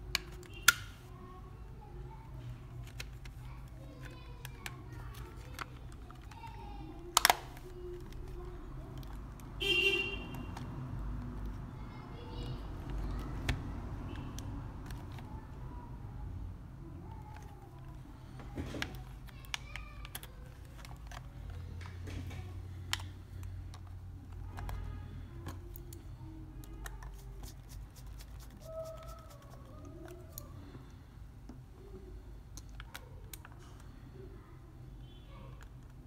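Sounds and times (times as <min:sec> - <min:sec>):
plastic controller clicks: 0:07.1 - 0:09.4.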